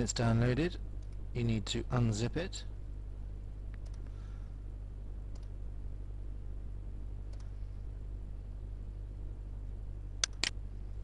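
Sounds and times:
steady low hum: 0.0s - 11.0s
faint computer mouse clicks: 3.7s - 4.1s, 5.3s - 5.5s, 7.3s - 7.6s, 10.2s - 10.6s.

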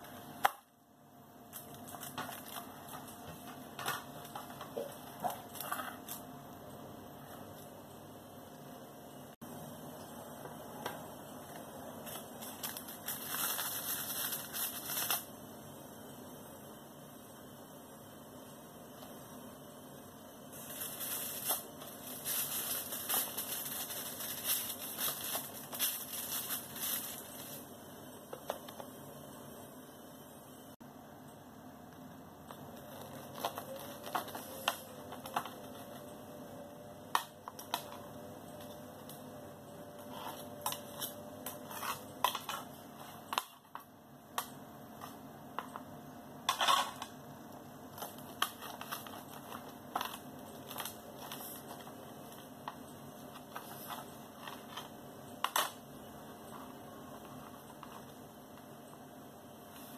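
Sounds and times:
crinkly rustling and crackling: 1.5s - 6.3s, 11.4s - 15.3s, 20.5s - 27.7s, 32.4s - 36.2s, 47.8s - 58.8s.

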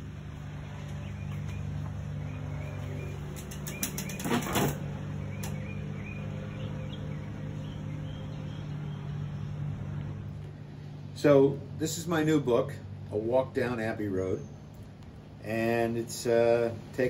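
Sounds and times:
steady low hum: 0.0s - 17.0s
folding chair creaking and clicking: 3.3s - 5.6s.

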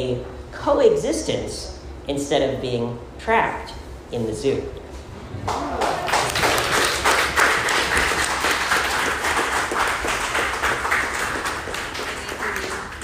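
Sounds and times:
crowd applause: 5.4s - 13.0s.

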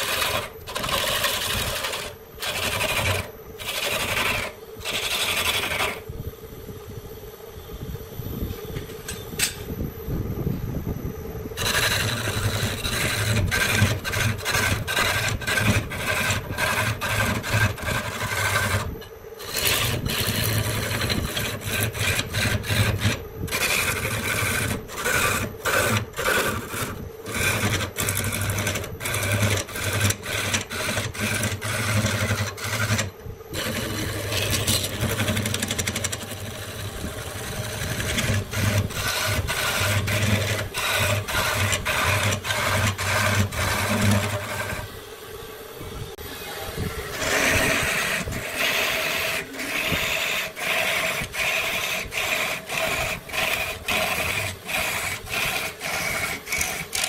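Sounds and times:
scraping tool on wood: 0.0s - 6.0s, 11.6s - 44.9s, 47.1s - 57.0s
steady low hum: 0.0s - 57.0s.

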